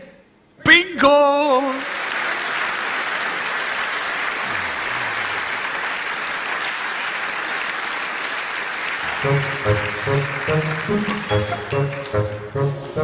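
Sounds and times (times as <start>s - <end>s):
audience applauding: 1.7s - 12.4s
music: 9.0s - 13.0s.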